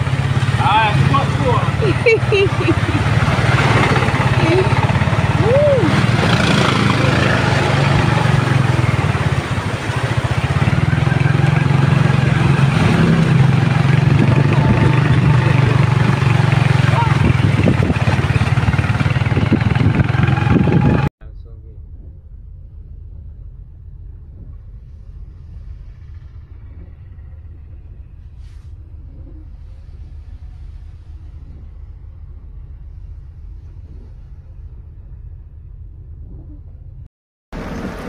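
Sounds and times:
floodwater rushing: 0:00.0 - 0:21.1
small motorcycle engine running: 0:00.0 - 0:21.1.

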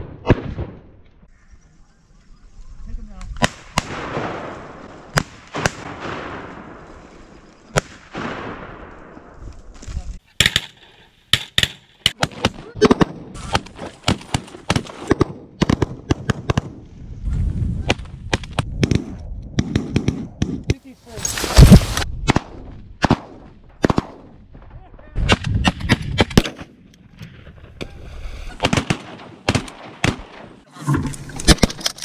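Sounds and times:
shotgun blasts echoing: 0:03.4 - 0:06.8, 0:07.7 - 0:09.1, 0:21.6 - 0:24.4, 0:28.6 - 0:30.6
rapid sharp cracks and pops: 0:17.9 - 0:24.2.

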